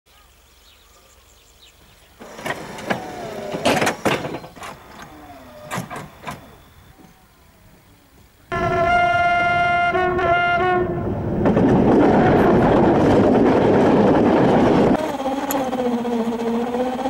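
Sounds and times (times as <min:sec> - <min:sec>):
railway wagons clanking: 0:02.2 - 0:08.4, 0:11.0 - 0:17.0
railway wagons squealing: 0:02.2 - 0:08.4, 0:11.5 - 0:17.0.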